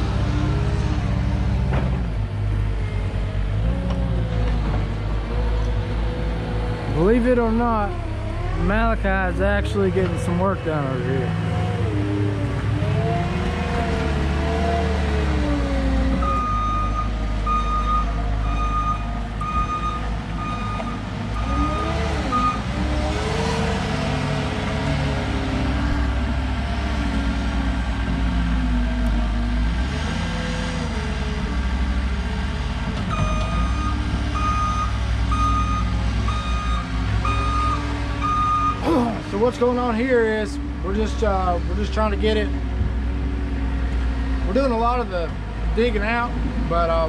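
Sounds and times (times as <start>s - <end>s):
diesel engine running under load: 0.0s - 47.0s
backup alarm beeping: 16.2s - 21.6s, 33.1s - 38.8s.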